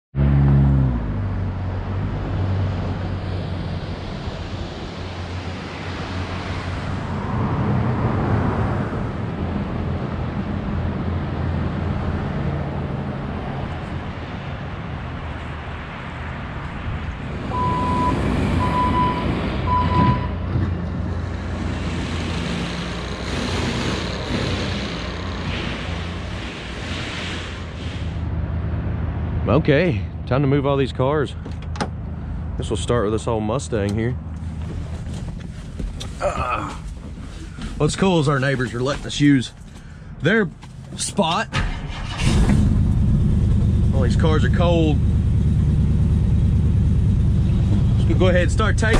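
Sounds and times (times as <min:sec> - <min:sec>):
road traffic drone: 0:00.1 - 0:48.9
short high-pitched beeps: 0:17.6 - 0:20.4.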